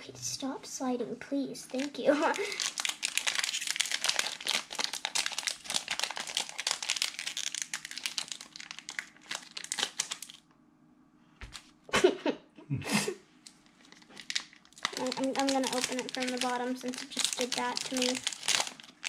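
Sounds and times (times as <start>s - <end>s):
foil wrapper crinkling: 1.8s - 10.4s, 13.4s - 19.0s.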